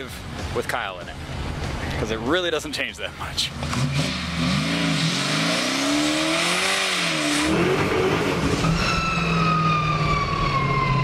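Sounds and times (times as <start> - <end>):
car engine revving: 3.2 - 10.3.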